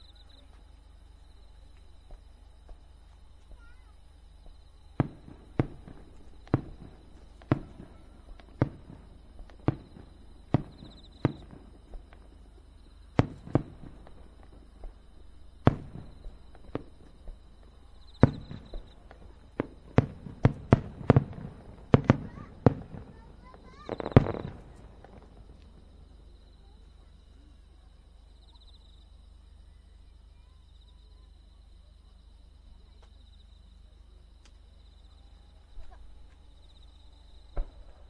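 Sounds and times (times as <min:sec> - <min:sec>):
fireworks bursting with bangs: 0:01.7 - 0:27.4, 0:35.8 - 0:38.0.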